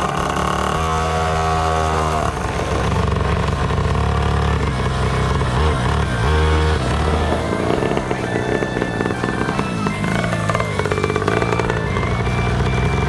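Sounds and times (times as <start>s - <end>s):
small two-stroke engine running: 0.0s - 13.0s.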